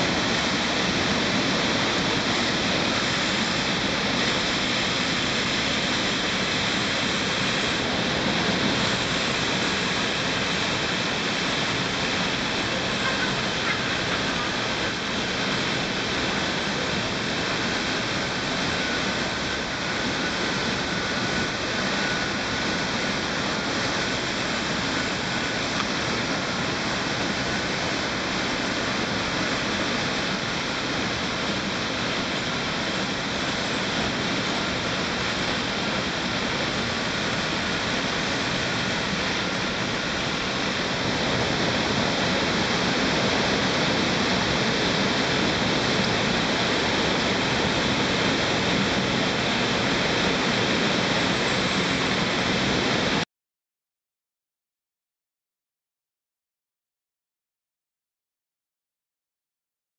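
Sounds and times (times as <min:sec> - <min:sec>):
rushing waterfall in rock gorge: 0:00.0 - 0:53.2.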